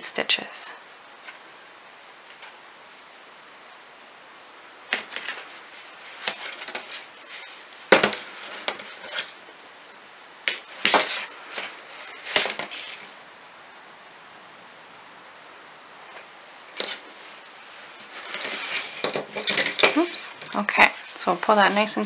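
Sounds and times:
yarn rustling: 0:04.9 - 0:13.4, 0:16.0 - 0:22.0.

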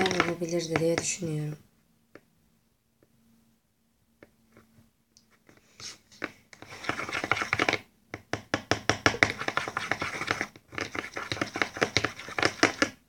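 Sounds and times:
brush scraping a lid: 0:06.6 - 0:07.8, 0:09.1 - 0:13.0.

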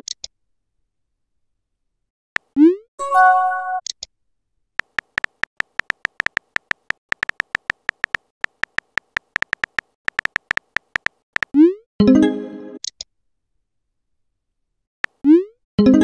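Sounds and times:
keyboard click taps: 0:04.8 - 0:11.5.

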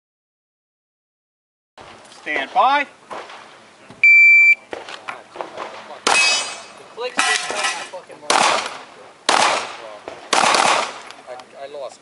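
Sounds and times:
shot timer beep: 0:04.0 - 0:04.6
handgun shots with echo: 0:08.3 - 0:11.1.

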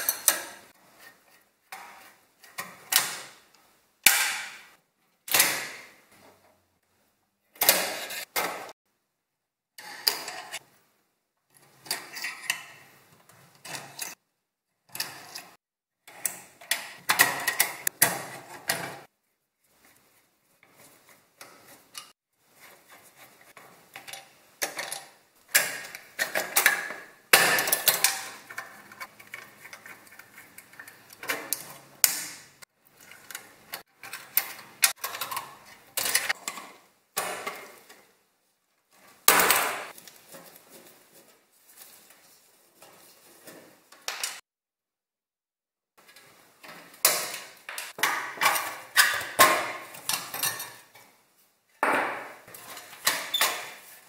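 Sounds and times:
screwdriver clicks and metal scrapes: 0:00.0 - 0:03.2, 0:09.8 - 0:10.7, 0:11.5 - 0:14.2, 0:27.6 - 0:36.7, 0:46.0 - 0:51.0, 0:52.5 - 0:54.0.

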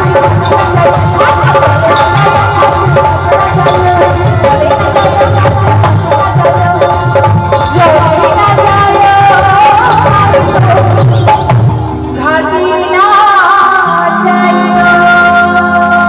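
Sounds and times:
hand drums beating: 0:00.0 - 0:12.2
rattling percussion: 0:00.0 - 0:12.6
live band music: 0:00.0 - 0:16.0.

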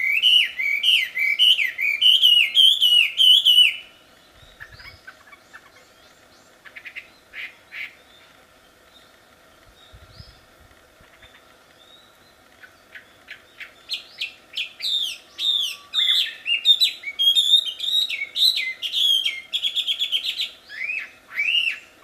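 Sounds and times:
bird singing whistles and trills: 0:00.0 - 0:08.3, 0:11.2 - 0:22.0.

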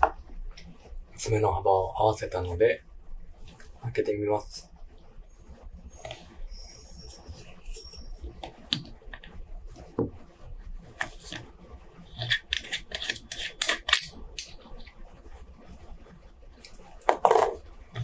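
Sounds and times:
small metallic clicks and scrapes: 0:11.0 - 0:15.0.

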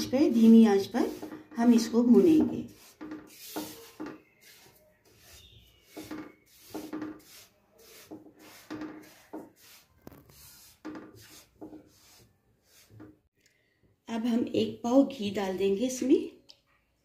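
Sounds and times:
spatula scraping semolina in wok: 0:00.0 - 0:13.0.

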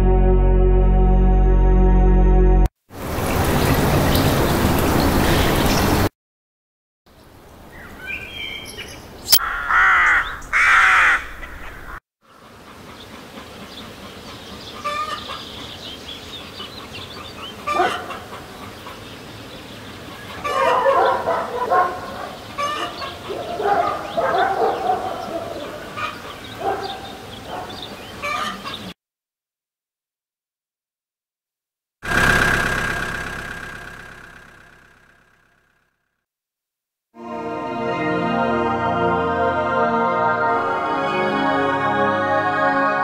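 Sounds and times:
scattered bird calls: 0:07.7 - 0:29.0
rooks cawing: 0:09.4 - 0:12.0.

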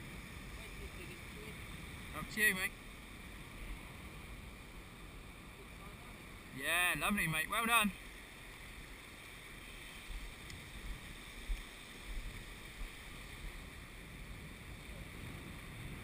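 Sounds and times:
small waves washing over sand: 0:00.0 - 0:16.0
wind rumble on microphone: 0:09.6 - 0:16.0.

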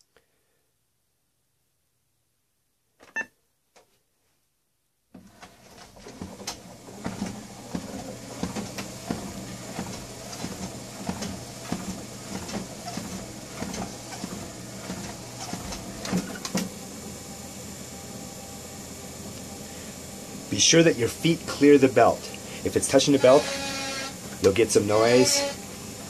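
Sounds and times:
treadmill motor and belt: 0:05.2 - 0:26.0
walking footsteps thumping: 0:07.0 - 0:16.7.

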